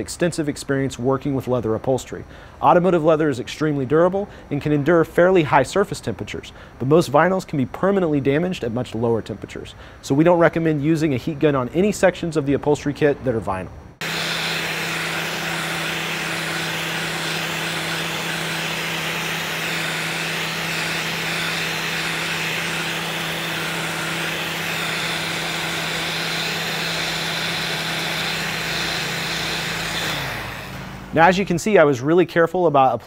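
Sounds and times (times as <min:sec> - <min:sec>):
heat gun blowing air: 0:14.0 - 0:31.4.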